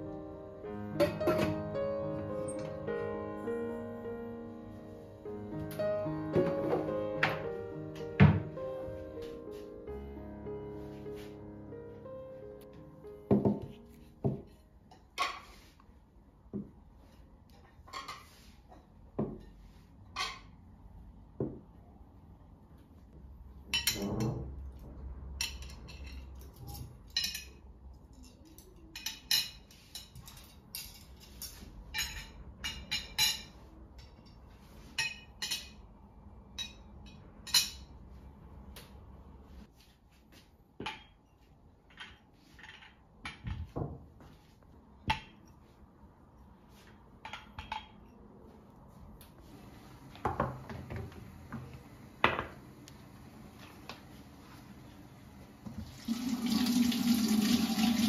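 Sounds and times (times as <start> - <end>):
plates set on a table: 10.7 - 56.2
cutlery clinking on china: 25.4 - 35.9.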